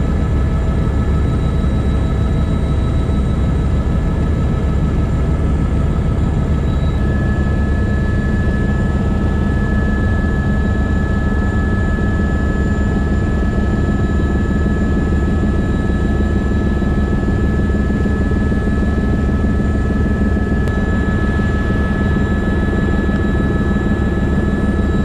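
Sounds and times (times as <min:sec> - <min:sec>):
helicopter rotor and engine drone: 0:00.0 - 0:25.0
high whine: 0:06.4 - 0:25.0.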